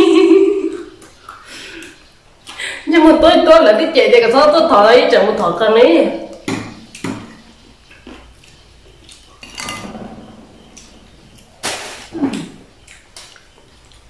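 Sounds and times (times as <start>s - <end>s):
spoon scraping a bowl: 9.4s - 11.0s.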